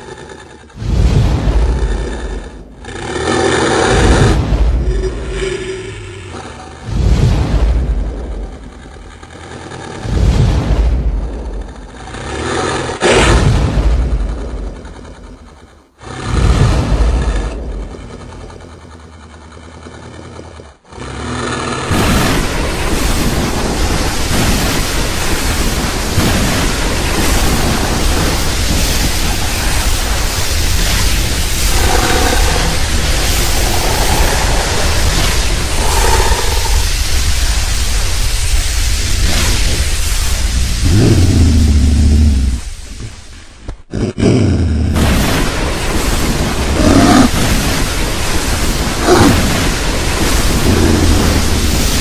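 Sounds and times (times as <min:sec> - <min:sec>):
harsh hissing monster rumble: 0:00.0 - 0:52.0.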